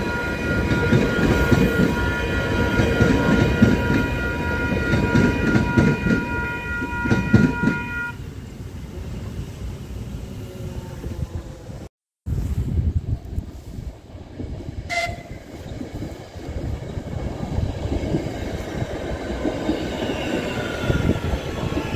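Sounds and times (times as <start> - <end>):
crossing warning bell ringing: 0.0 - 8.2
train rumble: 0.0 - 21.9.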